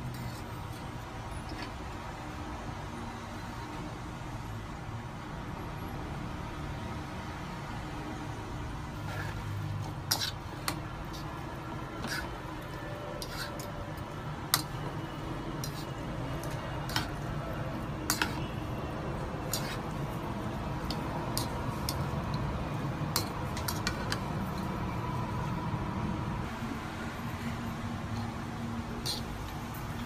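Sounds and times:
fork and spoon clinking on a bowl: 0:18.1 - 0:18.4.

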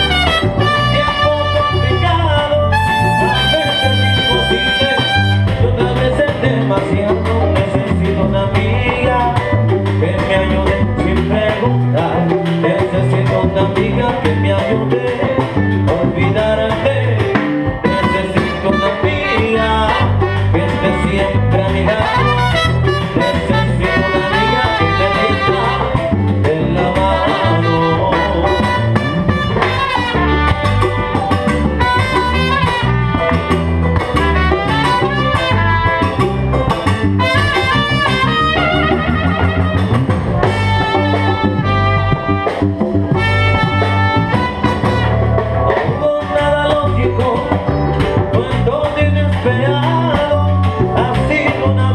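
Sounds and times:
trumpet: 0:00.0 - 0:06.5, 0:17.8 - 0:46.1
congas: 0:00.0 - 0:51.9
drum kit: 0:00.0 - 0:51.9
electric bass: 0:00.0 - 0:51.9
piano: 0:00.0 - 0:51.9.

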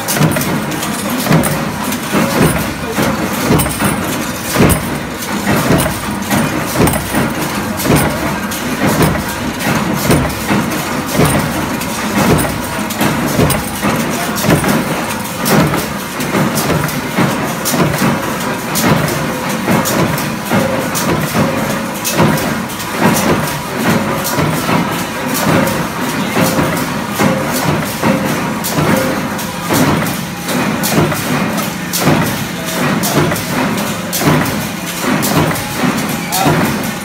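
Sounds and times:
clanking knocks: 0:00.0 - 0:18.1.

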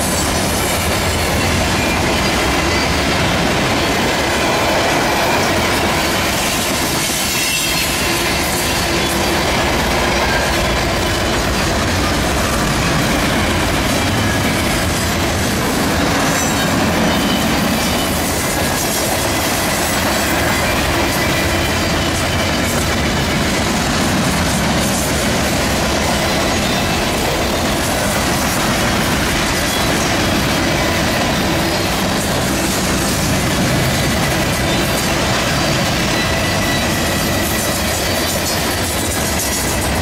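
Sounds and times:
train wheels rumbling on rails: 0:00.0 - 0:40.0
faint high wheel squeal: 0:05.4 - 0:09.3, 0:16.3 - 0:18.4, 0:34.0 - 0:39.7.

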